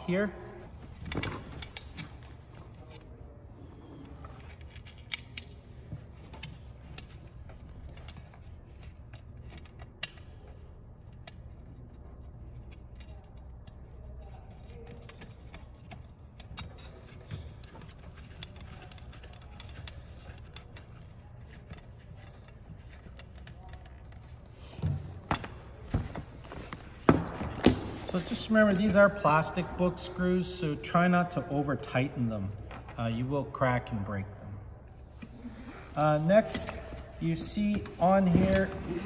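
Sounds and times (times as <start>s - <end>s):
clicks and rustling of webbing: 0.7s - 29.7s.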